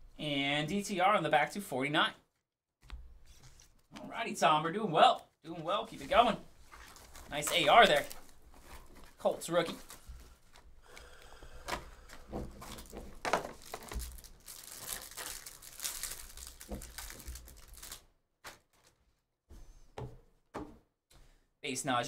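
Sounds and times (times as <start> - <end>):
plastic wrapper tearing and crinkling: 6.8 - 9.2, 12.6 - 18.9.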